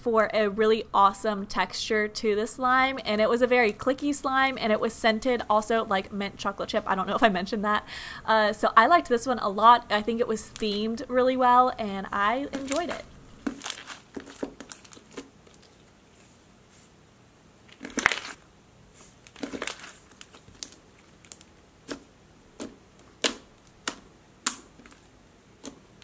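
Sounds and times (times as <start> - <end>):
slime clicking while kneaded: 19.4 - 26.0.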